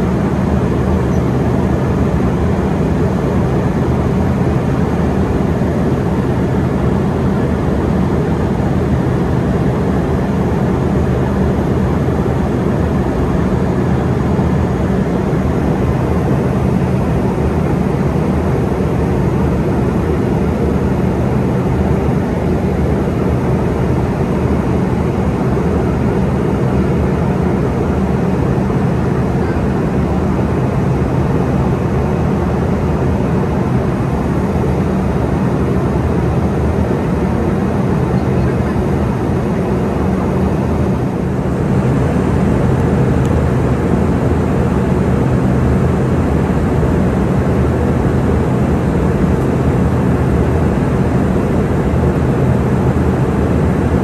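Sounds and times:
airliner cabin drone: 0.0 - 54.0
rush of airflow: 11.0 - 54.0.

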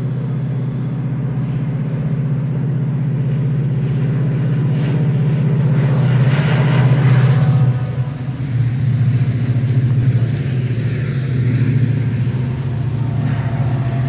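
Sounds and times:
diesel locomotive engine drone: 0.0 - 14.0.

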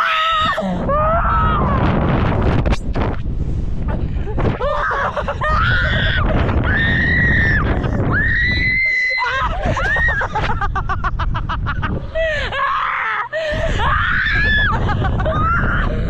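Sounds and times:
women screaming: 0.0 - 1.9, 4.6 - 10.4, 12.5 - 16.0
wind rush on microphone: 0.0 - 12.7, 13.3 - 16.0.

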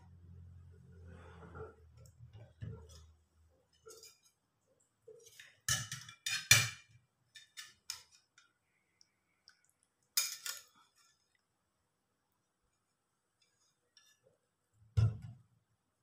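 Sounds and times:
spoon and dishes clinking: 5.2 - 8.2, 10.2 - 10.8.

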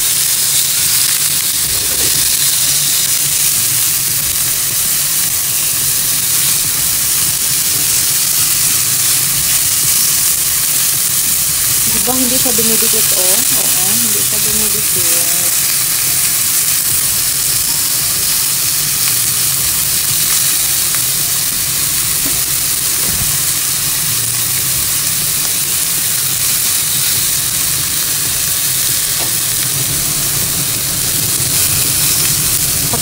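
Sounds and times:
chicken sizzling in a frying pan: 0.0 - 33.0
exhaust fan humming: 0.0 - 33.0.

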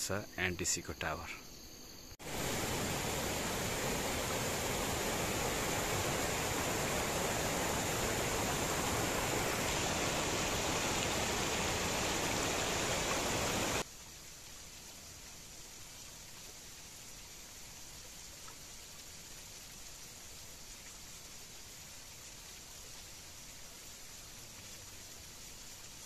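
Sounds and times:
stream rushing over rocks: 2.2 - 13.9.

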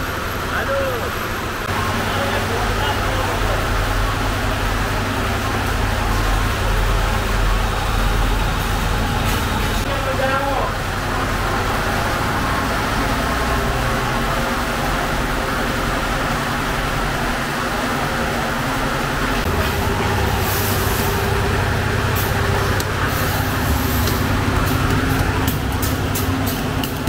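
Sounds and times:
rumbling background din: 0.0 - 27.0.

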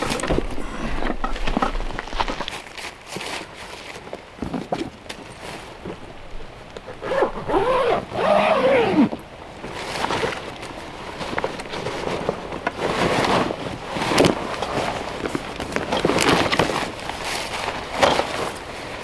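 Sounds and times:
zipper being unzipped: 7.0 - 9.1
fabric rustling: 9.6 - 19.0.

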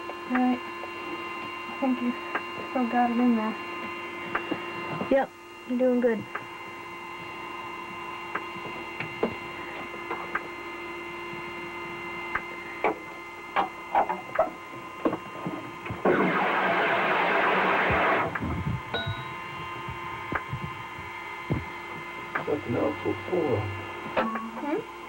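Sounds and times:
electrical hum: 0.0 - 25.0
steady tones: 15.3 - 25.0.

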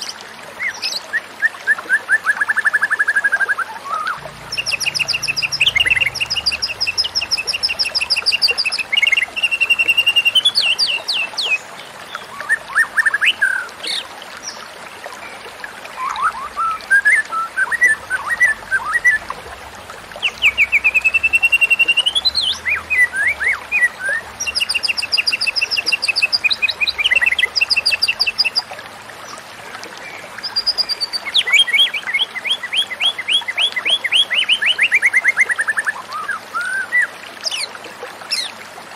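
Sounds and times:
bird singing whistled trills: 0.7 - 11.6, 16.0 - 19.2, 20.2 - 28.6.

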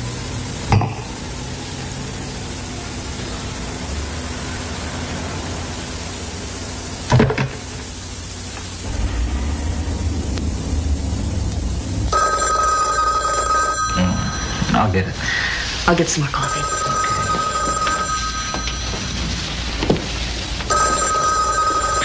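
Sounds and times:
film soundtrack hiss: 0.0 - 22.0
telephone bell ringing: 12.1 - 15.2, 16.3 - 19.6, 20.7 - 22.0.

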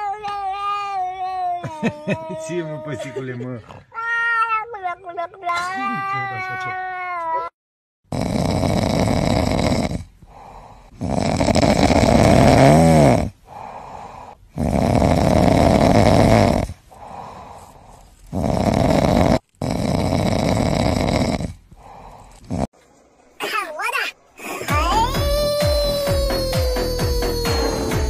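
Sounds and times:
dog snoring: 8.1 - 17.6, 18.3 - 22.7
dog breathing: 16.6 - 18.9.

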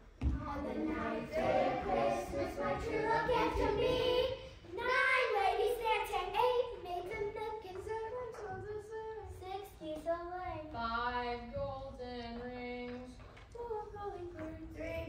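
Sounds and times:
children singing: 0.3 - 7.7.

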